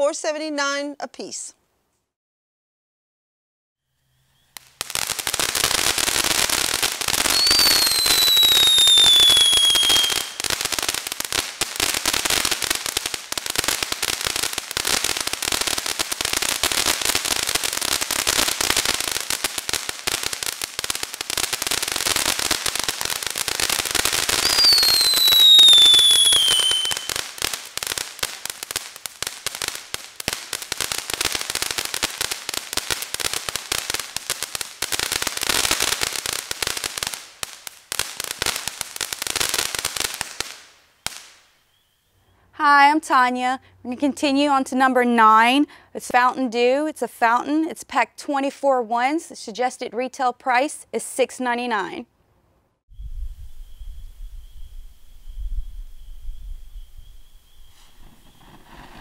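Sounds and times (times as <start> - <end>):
falling firework whistle: 3.8 - 6.6, 7.2 - 10.9, 21.6 - 28.5, 39.5 - 42.4, 52.9 - 59.0
fireworks fountain crackling: 4.5 - 47.6, 52.9 - 59.0.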